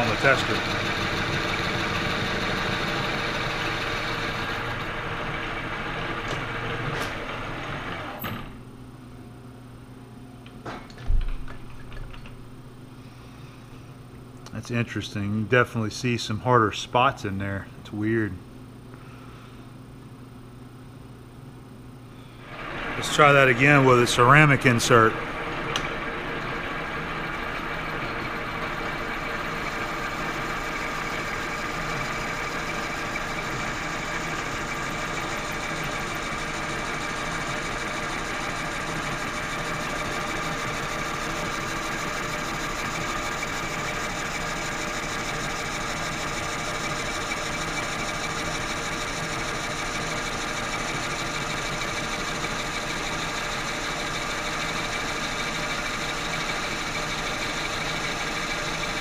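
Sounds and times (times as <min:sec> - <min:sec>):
lathe machining steel: 0:00.0 - 0:08.5, 0:22.4 - 0:59.0.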